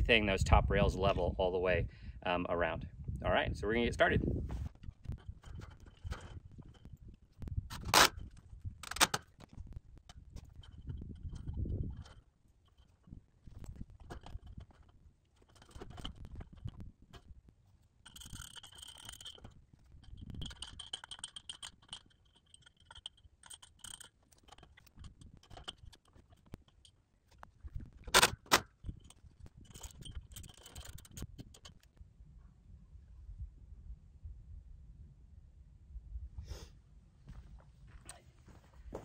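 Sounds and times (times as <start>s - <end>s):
metal tools clinking: 8.8s - 31.9s.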